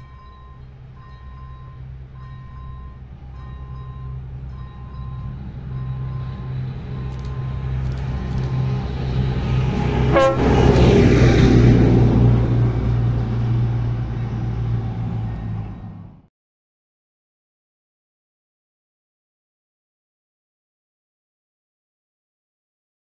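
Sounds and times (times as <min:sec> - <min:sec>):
level-crossing warning bell dinging: 0:00.0 - 0:11.6, 0:13.3 - 0:16.0
diesel locomotive engine drone: 0:00.0 - 0:16.3
locomotive horn toot: 0:09.8 - 0:11.3.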